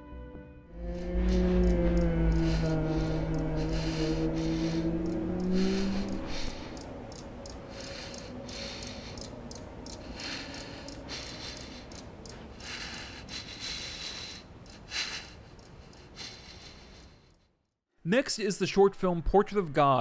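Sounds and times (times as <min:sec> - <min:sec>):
held low music note: 0:00.7 - 0:09.8
person breathing hard through nose: 0:00.8 - 0:17.5.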